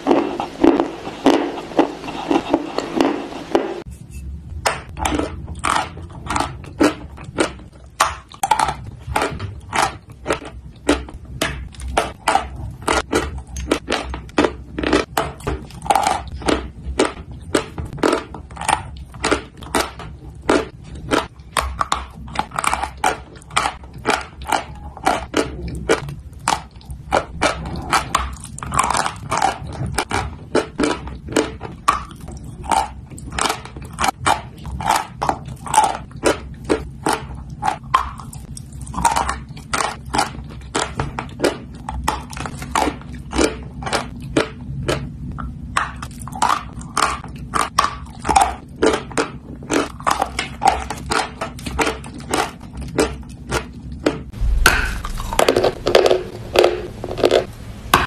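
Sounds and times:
chalk crunching while chewed: 0:05.0 - 0:57.5.

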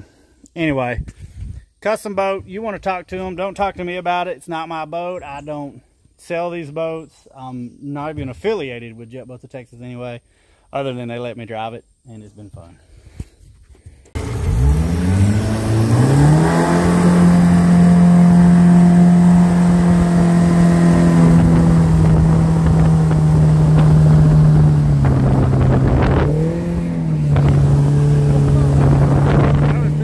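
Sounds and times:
outboard motor running: 0:14.2 - 0:30.0.

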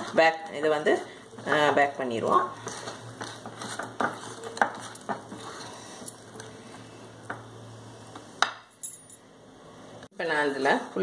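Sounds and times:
whisk swishing in batter: 0:02.5 - 0:06.0.

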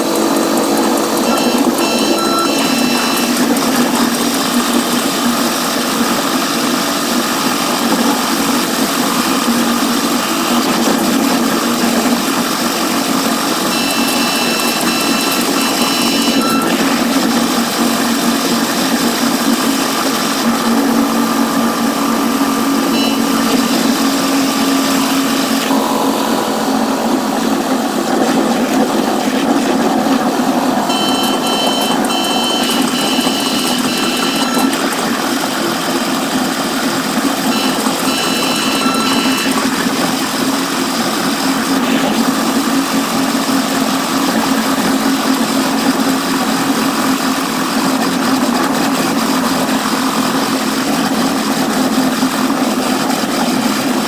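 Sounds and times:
high buzzy train running noise: 0:00.0 - 0:50.8
short high tones: 0:01.1 - 0:03.7, 0:13.6 - 0:17.4, 0:20.4 - 0:28.0, 0:30.8 - 0:35.0, 0:37.5 - 0:39.9.

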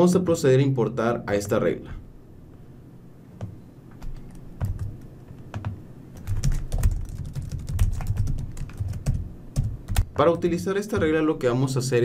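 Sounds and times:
keyboard typing: 0:04.0 - 0:10.2.

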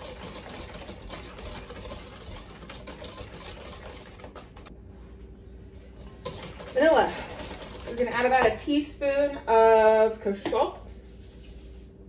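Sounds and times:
whisk beating batter in metal bowl: 0:00.0 - 0:04.7, 0:06.0 - 0:08.7.

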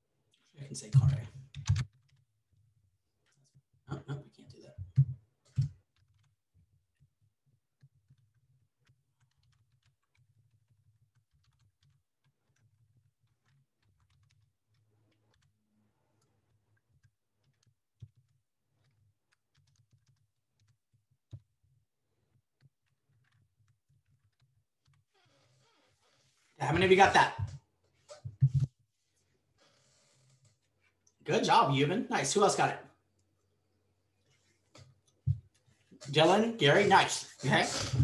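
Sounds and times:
typing on computer keyboard: 0:01.0 - 0:02.2, 0:07.8 - 0:15.5, 0:16.2 - 0:21.5.

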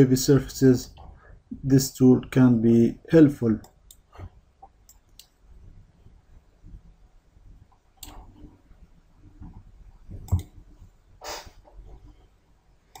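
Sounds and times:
computer mouse clicks: 0:07.7 - 0:08.4, 0:10.2 - 0:10.6
short breathy hiss: 0:11.2 - 0:11.7.

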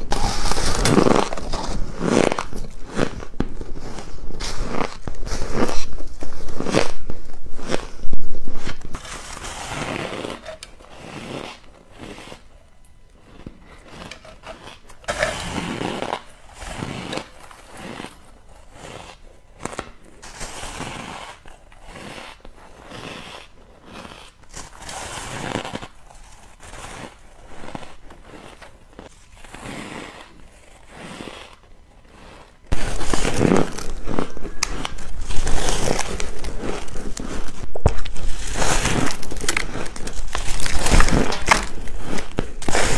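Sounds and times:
chewing crunchy ice: 0:26.6 - 0:42.9.

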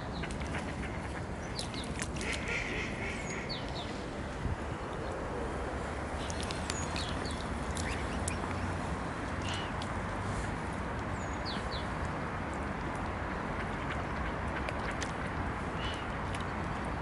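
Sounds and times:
swans splashing in water: 0:00.2 - 0:04.2, 0:06.0 - 0:10.6.

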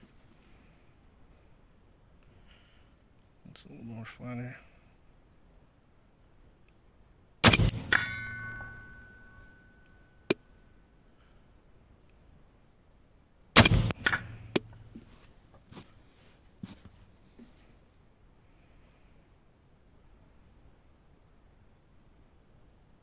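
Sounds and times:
rifle shots: 0:07.4 - 0:09.2, 0:13.6 - 0:14.8
metallic ringing ding: 0:07.5 - 0:10.4, 0:13.9 - 0:14.6.

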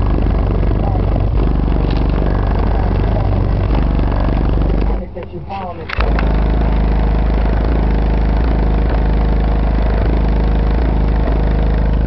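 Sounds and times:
distorted deep bass music: 0:00.0 - 0:12.0.

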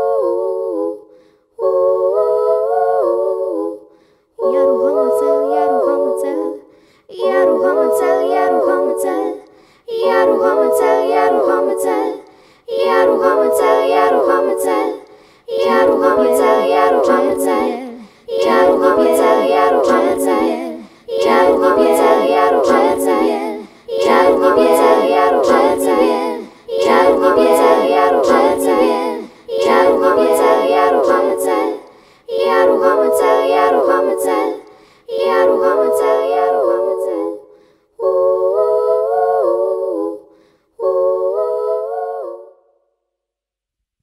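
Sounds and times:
girl singing layered harmonies: 0:00.0 - 0:42.6.

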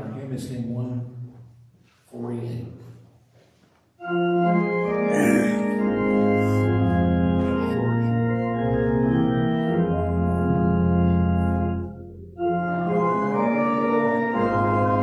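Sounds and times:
church organ playing a hymn: 0:04.0 - 0:15.0.

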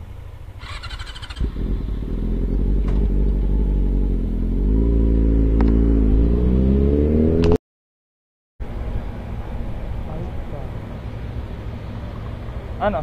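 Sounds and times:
motorcycle engine accelerating: 0:00.6 - 0:07.6.

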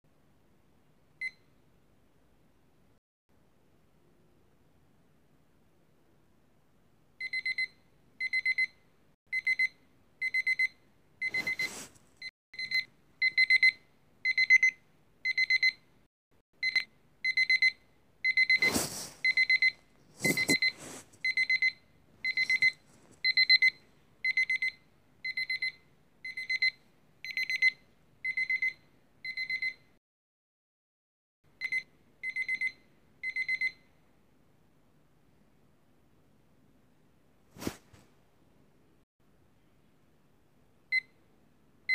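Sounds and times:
timer alarm beeping: 0:07.2 - 0:11.8, 0:12.6 - 0:15.8, 0:16.6 - 0:29.9, 0:31.6 - 0:33.8.

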